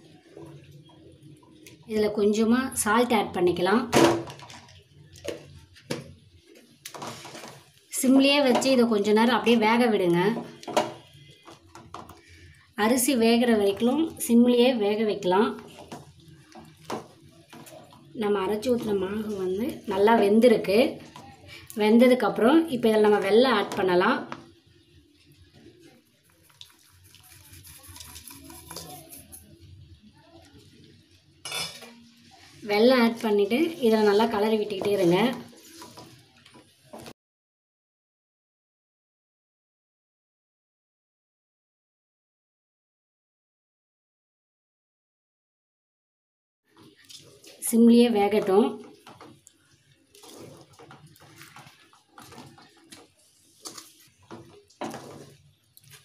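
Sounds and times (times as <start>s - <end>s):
grated sugar tipped into steel pot: 26.4s - 29.5s
scrape in pot: 26.8s - 29.5s, 35.3s - 36.2s, 50.1s - 56.0s.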